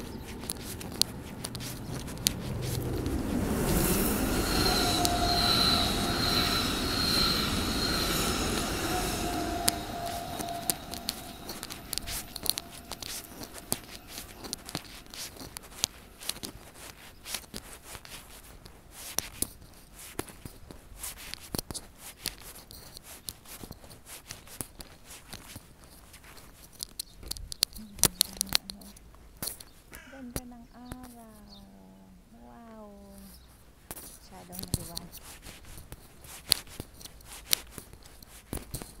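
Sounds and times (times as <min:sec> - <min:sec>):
microphone crackling and rustling: 0:00.0 - 0:03.9, 0:33.2 - 0:39.0
passing train: 0:00.0 - 0:16.9, 0:28.0 - 0:28.9.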